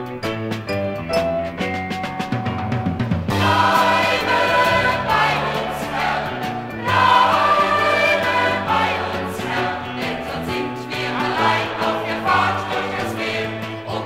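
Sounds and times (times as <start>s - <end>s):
band accompaniment: 0.0s - 14.0s
choir singing a church song: 3.3s - 14.0s.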